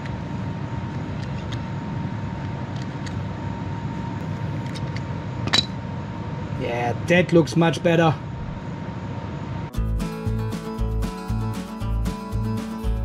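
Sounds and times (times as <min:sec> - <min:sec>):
faint high hum: 0:00.0 - 0:09.8
air conditioner noise: 0:00.0 - 0:13.0.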